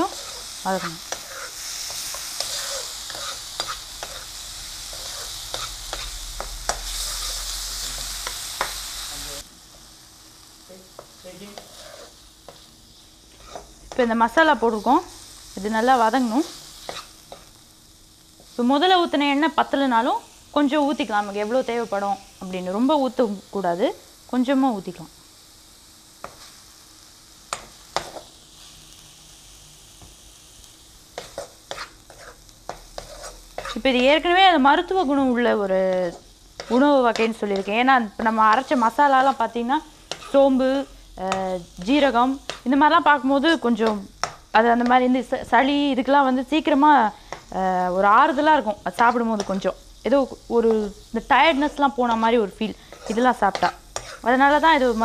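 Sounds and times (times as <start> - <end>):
metal spatula scraping pan: 0.0 - 7.4, 11.5 - 12.7, 13.3 - 13.7, 31.2 - 33.9, 36.1 - 37.7, 40.0 - 40.5, 51.5 - 54.4
paste sizzling in hot oil: 0.0 - 55.0.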